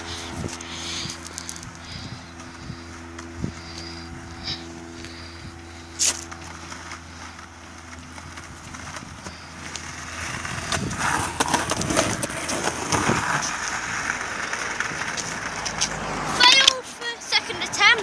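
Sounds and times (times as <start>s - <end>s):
steady low hum: 0.0s - 17.3s
skateboard wheels rolling on pavement: 0.0s - 18.0s
skateboard clicks and clacks: 6.1s - 18.0s.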